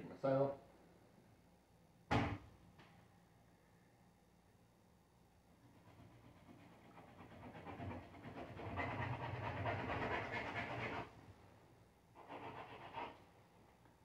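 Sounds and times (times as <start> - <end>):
knife sawing through ribs: 5.8 - 11.1, 12.2 - 13.2.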